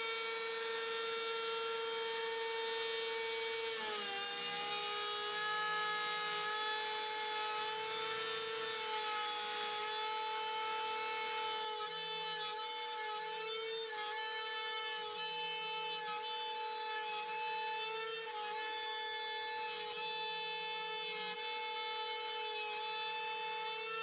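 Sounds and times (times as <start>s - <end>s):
router high whine: 0.0s - 24.0s.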